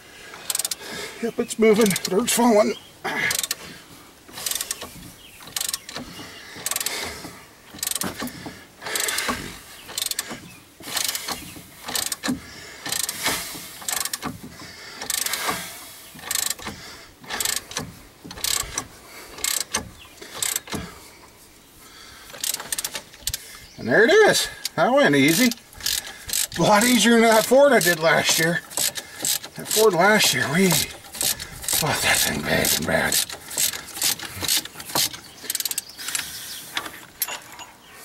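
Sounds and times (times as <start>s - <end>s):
ratchet pawl clicking: 0.4s - 0.8s, 3.3s - 3.6s, 4.3s - 7.1s, 7.7s - 14.3s, 15.0s - 20.8s, 22.3s - 23.4s, 24.6s - 36.3s.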